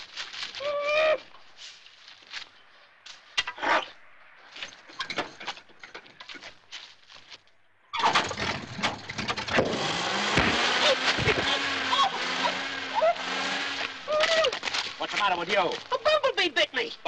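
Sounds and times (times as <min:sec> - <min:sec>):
crumpled newspaper rustling: 0:00.0 - 0:00.8, 0:14.4 - 0:16.2.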